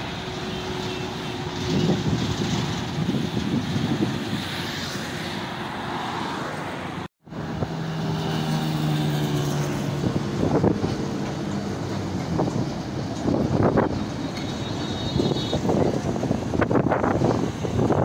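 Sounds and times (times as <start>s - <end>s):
highway traffic rushing: 0.0s - 18.0s
vehicle rushing past: 1.7s - 11.9s.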